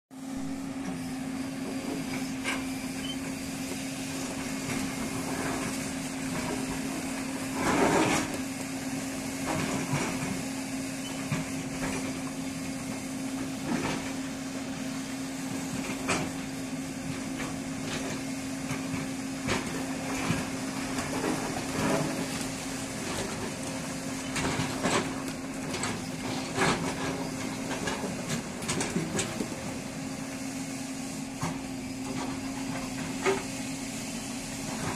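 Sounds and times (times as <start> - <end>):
excavator diesel engine running: 0.2 - 34.9.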